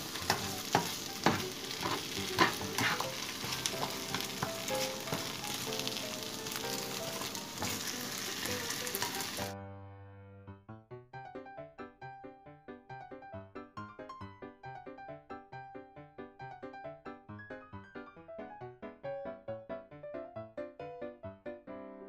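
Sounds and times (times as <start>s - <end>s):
spatula scraping a pan: 0.0s - 9.5s
potatoes sizzling in a frying pan: 0.0s - 9.6s
faint background music: 0.0s - 9.8s.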